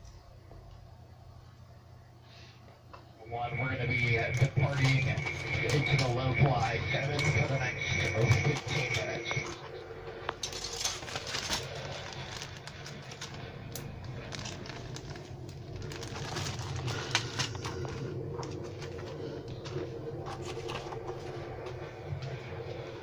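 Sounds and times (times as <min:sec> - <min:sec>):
steady low hum: 0:00.0 - 0:23.0
plastic bags and paper rustling: 0:03.9 - 0:22.9.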